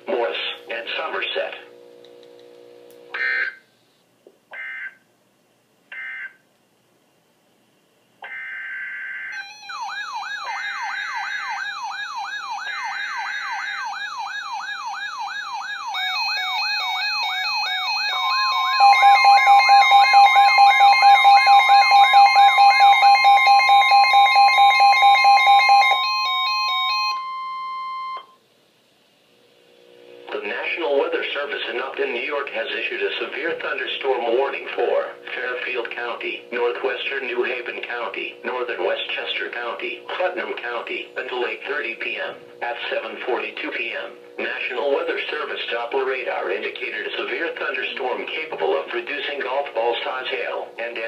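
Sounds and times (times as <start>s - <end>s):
warbling siren-like alarm: 3.1s - 3.6s, 8.2s - 28.4s
steady warning tone: 9.3s - 28.4s, 29.9s - 51.0s
rapid beeping: 9.4s - 28.2s.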